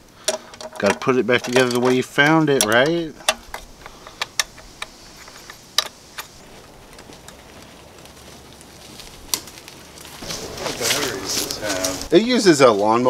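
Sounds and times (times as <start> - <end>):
clicks and knocks of parts fitted: 0.2 - 6.4.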